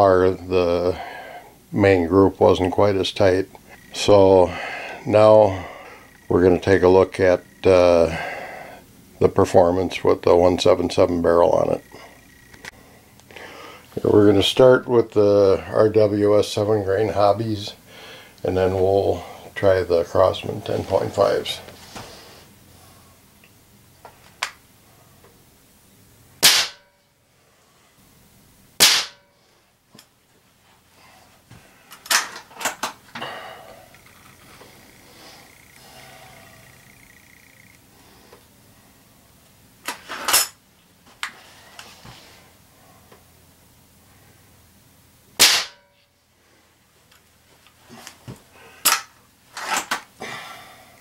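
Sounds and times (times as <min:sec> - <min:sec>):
air rifle sharp cracks: 0:26.4 - 0:26.9, 0:28.8 - 0:29.3, 0:45.4 - 0:45.9.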